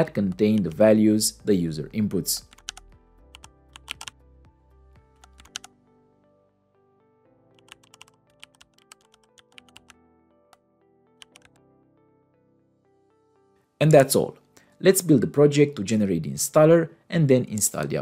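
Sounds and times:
keyboard typing: 0.0s - 0.8s, 2.4s - 4.2s, 5.1s - 5.8s, 7.5s - 10.6s, 11.2s - 11.6s
faint background music: 0.0s - 18.0s.

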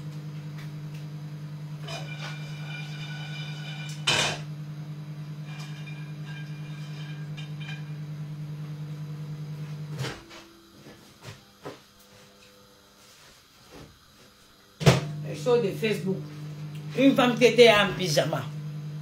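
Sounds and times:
microwave oven humming: 0.0s - 19.0s
microwave clunk: 14.8s - 15.2s.

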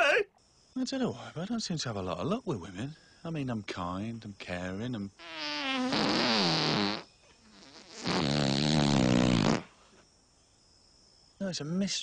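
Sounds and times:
wavering farts: 5.2s - 9.7s.

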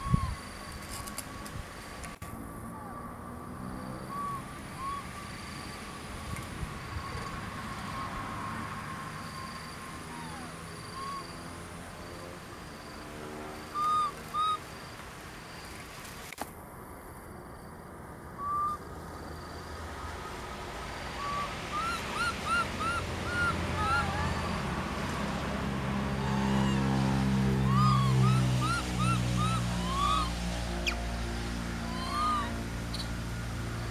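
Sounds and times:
infant monkeys calling: 0.0s - 0.4s, 4.0s - 5.1s, 9.2s - 11.4s, 13.7s - 14.6s, 18.4s - 18.8s, 21.2s - 31.1s, 31.8s - 33.1s.

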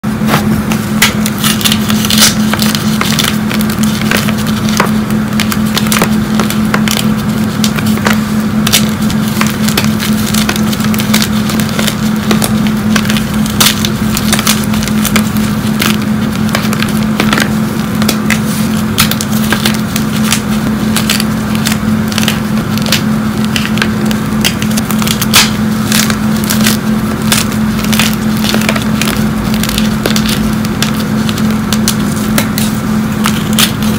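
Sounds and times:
steady low hum: 0.0s - 33.9s
chalk blocks crunching by hand: 0.2s - 33.9s.

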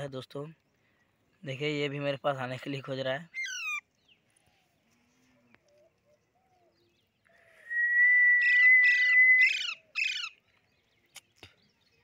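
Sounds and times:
parakeet screeching: 3.3s - 3.9s, 8.4s - 10.3s
steady whistled note: 7.6s - 9.4s.

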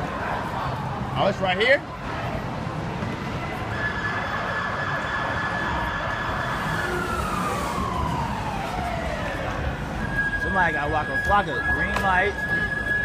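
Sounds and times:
city street noise: 0.0s - 13.0s
emergency vehicle siren: 3.6s - 13.0s.

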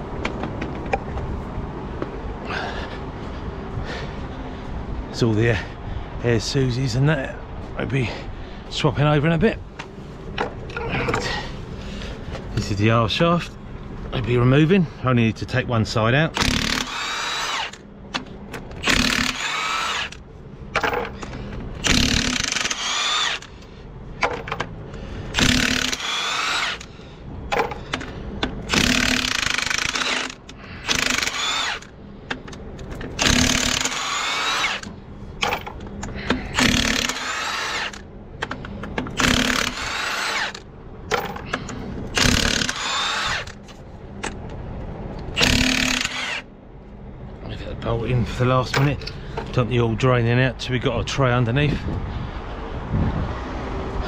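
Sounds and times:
impact wrench bursts: 16.3s - 17.8s, 18.8s - 20.2s, 20.8s - 24.7s, 25.3s - 43.6s, 45.4s - 46.5s.

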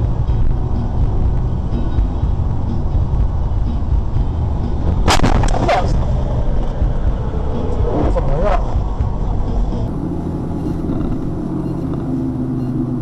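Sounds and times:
car road and engine noise: 0.0s - 13.0s
sudden sharp bangs: 4.8s - 9.3s.

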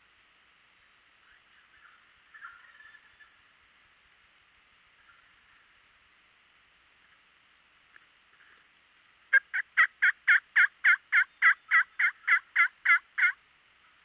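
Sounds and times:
turkey yelps: 1.6s - 3.4s, 9.3s - 13.4s.

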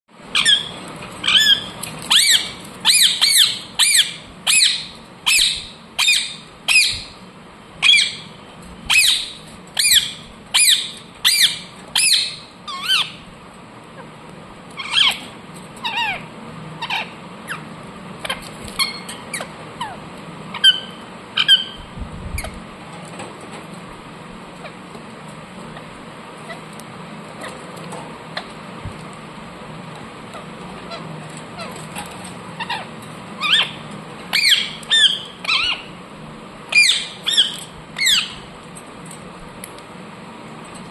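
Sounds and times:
parakeet squawking: 0.3s - 7.2s, 7.8s - 13.3s, 14.7s - 22.6s, 25.7s - 26.8s, 28.3s - 28.6s, 30.2s - 36.0s, 36.7s - 38.5s.

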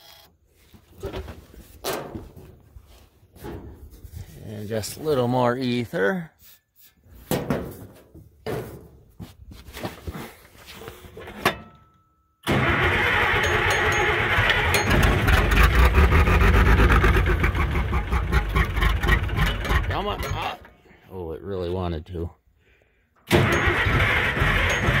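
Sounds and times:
tractor engine running: 12.4s - 20.7s, 23.3s - 25.0s.

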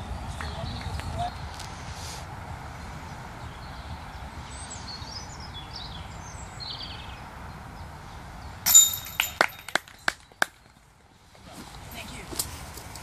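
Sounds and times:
metallic clang of chain basket: 8.7s - 9.8s
chain rattles: 8.7s - 10.1s.

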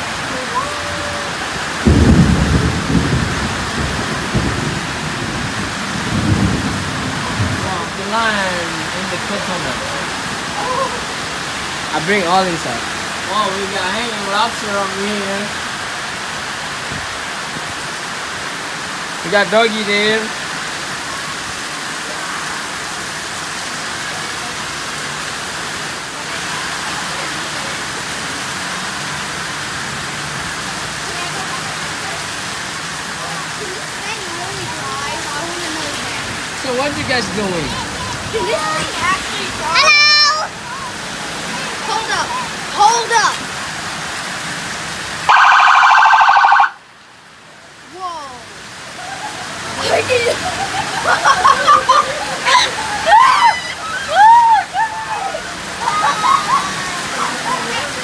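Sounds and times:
heavy rain pouring: 0.0s - 58.0s
thunder rumbling: 1.2s - 10.5s.

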